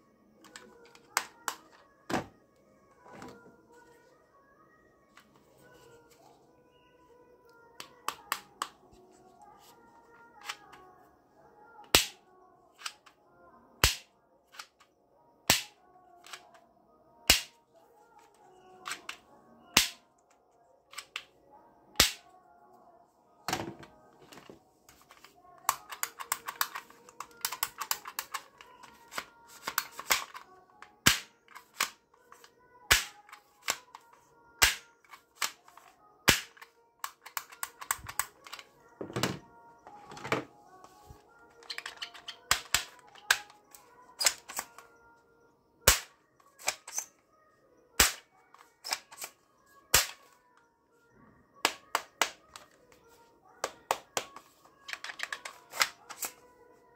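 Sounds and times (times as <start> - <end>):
toy gun clicks: 25.1 - 30.4, 31.0 - 38.7, 41.6 - 43.6, 48.0 - 49.4, 54.9 - 56.4.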